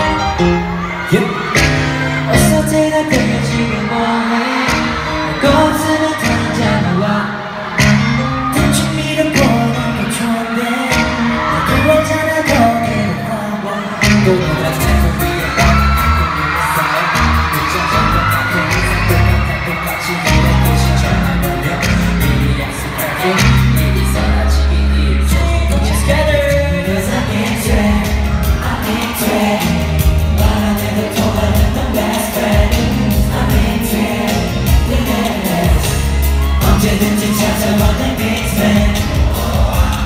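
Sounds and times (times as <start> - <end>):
male voices singing pop song: 0.0 - 40.0.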